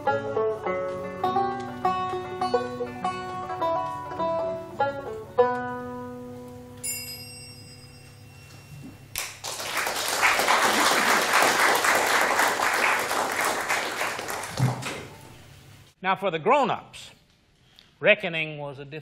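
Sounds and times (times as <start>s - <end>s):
banjo and guitar chord ringing: 0.0s - 6.4s
audience applause: 9.2s - 15.2s.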